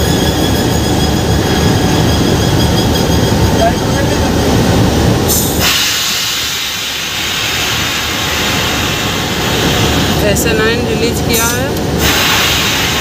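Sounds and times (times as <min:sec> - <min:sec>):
compressed air hissing from brake valve: 0:05.3 - 0:10.0, 0:12.0 - 0:13.0.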